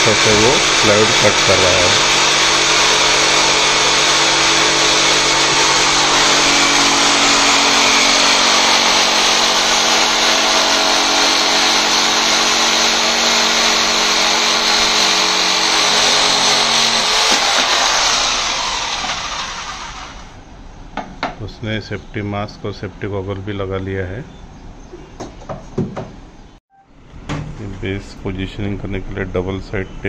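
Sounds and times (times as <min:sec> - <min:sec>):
saw blade rasping in wood: 0:00.0 - 0:20.3
jigsaw motor hum: 0:00.0 - 0:20.4.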